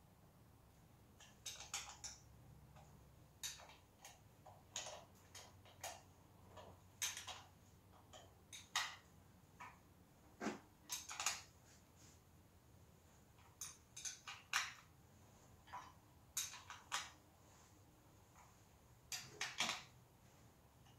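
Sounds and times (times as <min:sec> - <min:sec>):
wrench clicking on bolts: 0:01.2 - 0:02.2, 0:02.8 - 0:06.0, 0:13.6 - 0:14.8, 0:15.7 - 0:17.2.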